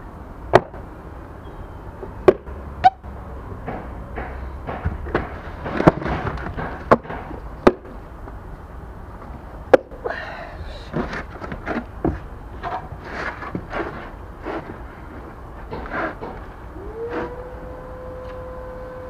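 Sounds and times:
soft knocks and scrapes: 11.0 - 16.5.

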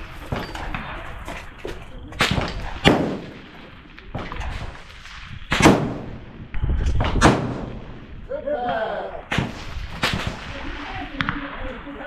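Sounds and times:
rifle shots: 2.2 - 8.2, 9.3 - 11.8.

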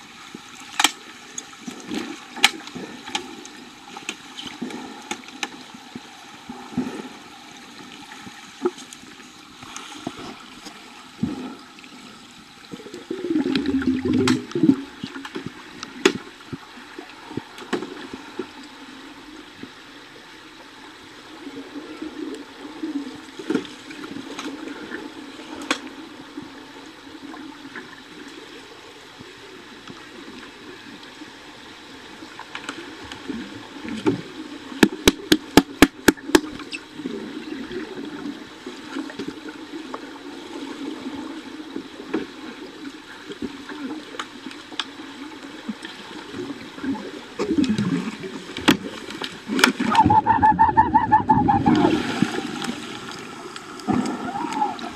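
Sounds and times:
muffled underwater hiss: 0.0 - 54.9
bubbling rush: 49.8 - 54.9.

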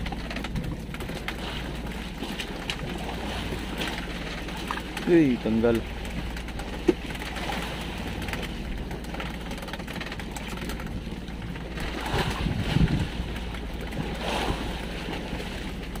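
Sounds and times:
boat engine humming: 0.0 - 16.0
water noise: 0.0 - 16.0
wind: 0.0 - 16.0.

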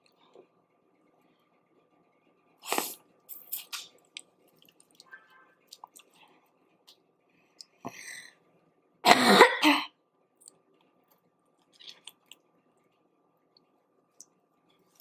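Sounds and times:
woman coughing: 9.1 - 10.0.

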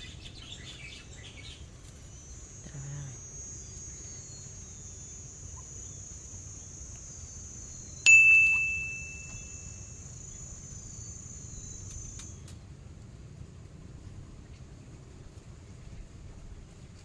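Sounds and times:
high-pitched insect drone: 2.4 - 12.3
bright ding: 8.1 - 10.0.

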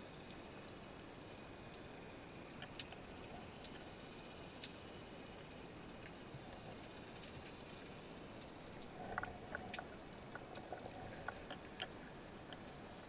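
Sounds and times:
faint hum: 0.0 - 13.0
sharp clicks and crackles: 2.5 - 4.9, 5.8 - 13.0.

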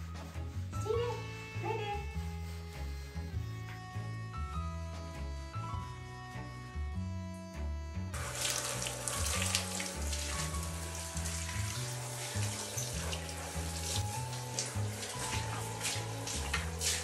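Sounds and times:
shower spray on tiled floor: 8.2 - 17.0.

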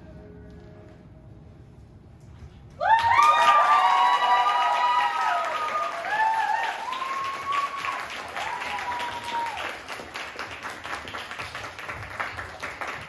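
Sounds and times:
cheering whoops: 2.8 - 9.9
audience clapping: 2.8 - 13.0.

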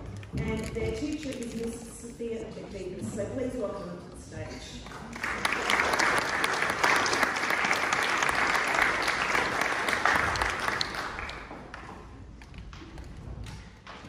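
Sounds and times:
audience applauding: 5.0 - 12.0.

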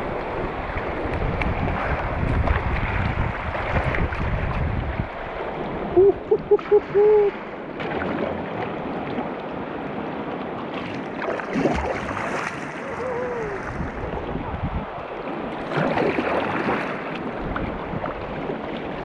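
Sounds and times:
rushing river water: 0.0 - 19.0
wind buffeting microphone: 0.0 - 19.0
short hoots: 6.0 - 7.4.

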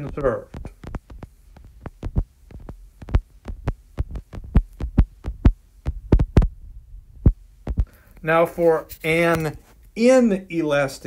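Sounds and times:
stylus tapping on tablet: 0.0 - 6.6, 7.2 - 8.0.

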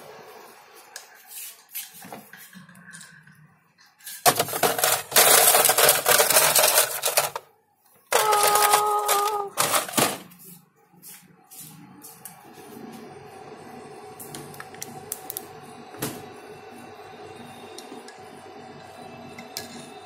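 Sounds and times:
ice clattering in plastic tray: 4.2 - 7.5, 8.1 - 10.3
steady ringing tone: 15.6 - 20.0.

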